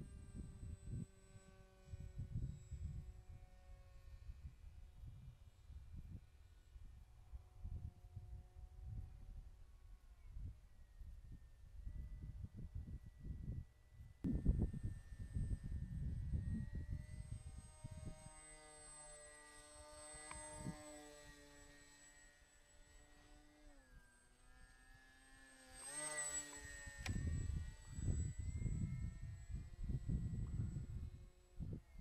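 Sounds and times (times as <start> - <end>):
wind rumbling on microphone: 0.0 - 18.4, 26.6 - 32.0
model plane propeller buzzing: 0.0 - 32.0.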